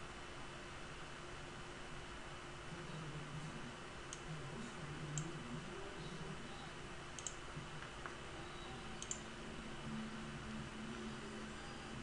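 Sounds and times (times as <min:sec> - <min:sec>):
low hum and hiss: 0:00.0 - 0:12.0
computer mouse clicks: 0:05.1 - 0:05.3, 0:07.1 - 0:08.2, 0:09.0 - 0:09.3.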